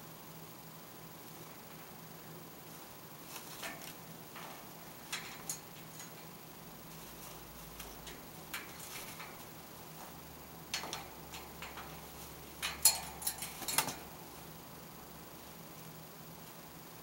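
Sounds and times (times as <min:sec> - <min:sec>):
parrot claws tapping on wire cage: 0:03.3 - 0:06.4, 0:07.0 - 0:14.6.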